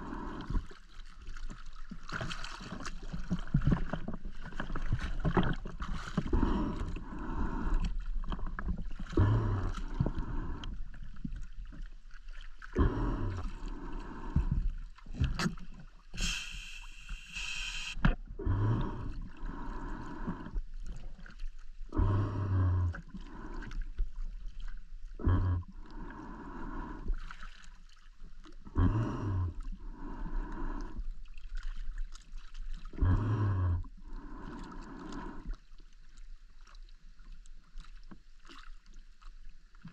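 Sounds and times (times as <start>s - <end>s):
diver breathing through regulator: 0.0s - 0.8s, 6.2s - 8.1s, 9.1s - 11.0s, 12.8s - 14.7s, 16.1s - 20.7s, 21.9s - 24.0s, 25.2s - 27.4s, 28.7s - 31.2s, 32.9s - 35.6s
bubbles rumbling and gurgling: 0.0s - 16.1s, 18.0s - 27.3s, 28.3s - 35.7s
high hiss: 16.2s - 18.0s.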